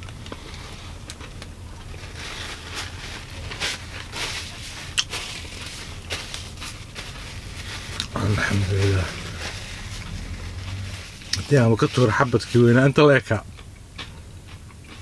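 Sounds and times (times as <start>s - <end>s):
steady low hum: 0.0s - 14.8s
paper napkin rustling: 2.0s - 12.8s.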